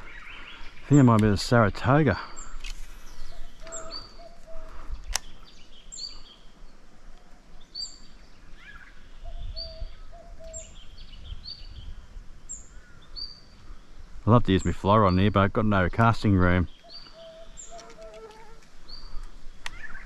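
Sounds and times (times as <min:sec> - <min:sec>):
lower bird call of even notes: 0:16.7 - 0:18.6
short high bird call: 0:16.9 - 0:18.6.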